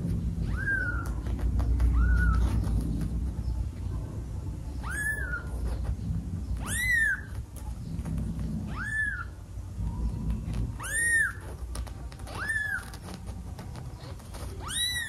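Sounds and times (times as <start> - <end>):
kitten mewing: 0.3 - 3.2, 4.8 - 6.0, 6.6 - 9.4, 10.3 - 15.0.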